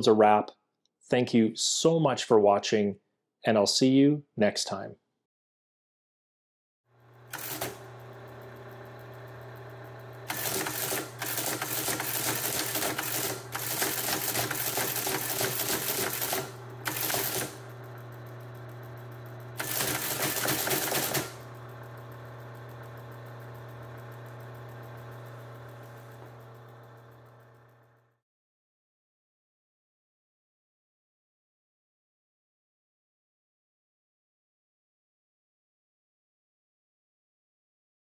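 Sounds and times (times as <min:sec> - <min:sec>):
teleprinter motor hum: 0:07.0 - 0:28.2
teleprinter type clattering: 0:07.3 - 0:07.9, 0:10.3 - 0:17.7, 0:19.6 - 0:21.5.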